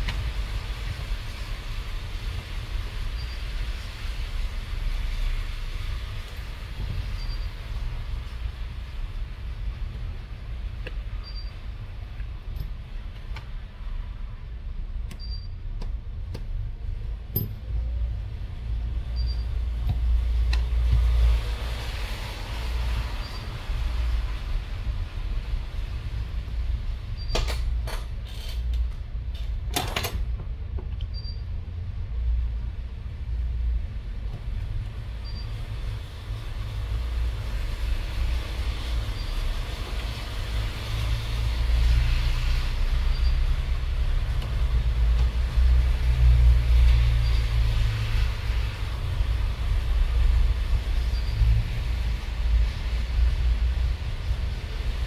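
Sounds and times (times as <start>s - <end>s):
steady low rumble: 0.0s - 55.0s.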